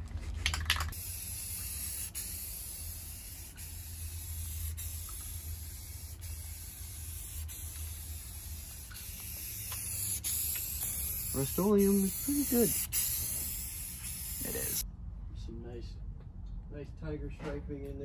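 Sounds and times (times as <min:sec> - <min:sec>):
spray paint can hissing: 0:00.6 - 0:14.8.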